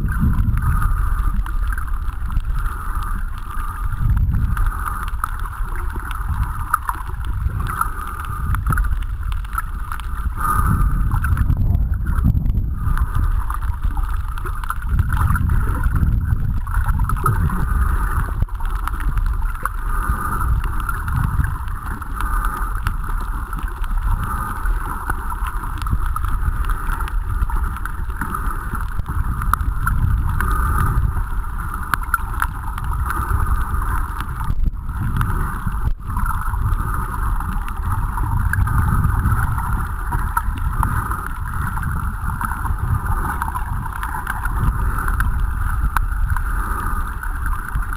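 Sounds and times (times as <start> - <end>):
muffled underwater rumble: 0.0 - 47.9
faint clicks: 0.1 - 47.9
underwater hiss: 9.5 - 16.0, 26.2 - 31.9.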